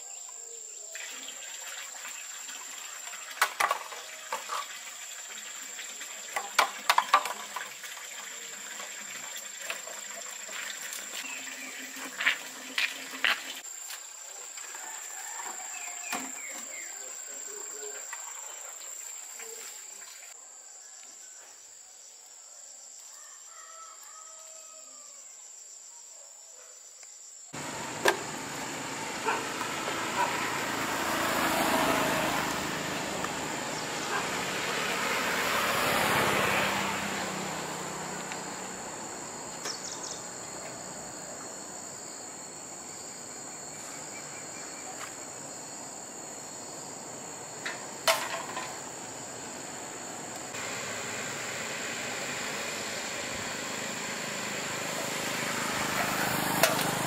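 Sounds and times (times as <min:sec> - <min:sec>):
insects droning: 0:00.0 - 0:57.0
vehicles passing: 0:27.6 - 0:41.9, 0:43.4 - 0:57.0.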